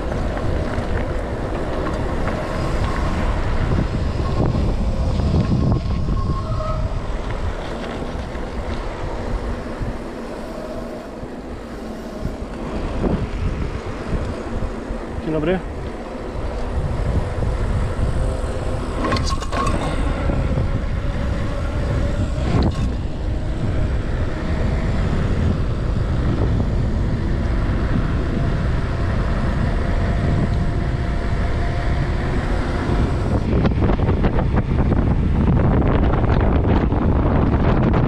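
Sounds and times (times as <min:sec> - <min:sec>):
bike tyres rolling on asphalt: 0:00.0 - 0:38.0
wind buffeting microphone: 0:00.0 - 0:38.0
faint rising hum: 0:07.4 - 0:34.2.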